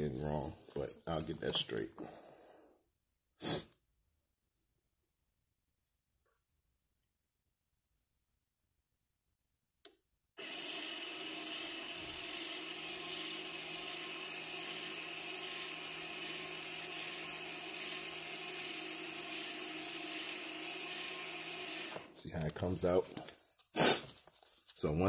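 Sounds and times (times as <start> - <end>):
brake motor whirring: 10.4 - 22.2.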